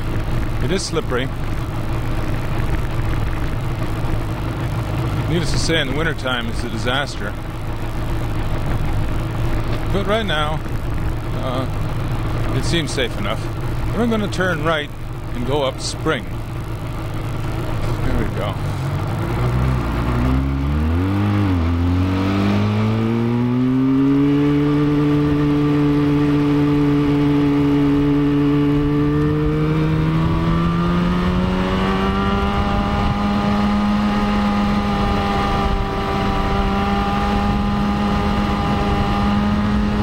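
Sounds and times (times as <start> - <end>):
motorcycle engine pulling uphill: 0.0 - 40.0
wind noise on microphone: 28.1 - 40.0.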